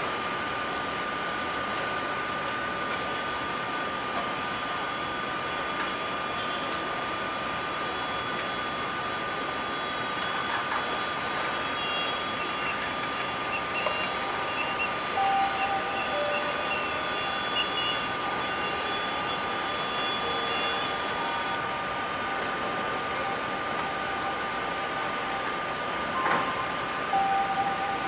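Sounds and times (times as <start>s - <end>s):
machinery high whine: 0.0s - 28.0s
short beeps: 11.6s - 28.0s.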